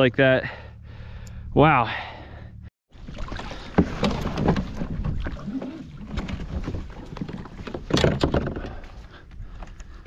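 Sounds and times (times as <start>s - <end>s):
paddle strokes splashing water: 3.0s - 7.9s.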